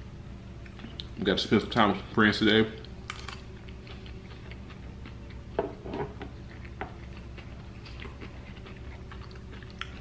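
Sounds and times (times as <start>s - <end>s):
close chewing: 3.2s - 5.6s, 6.2s - 10.0s.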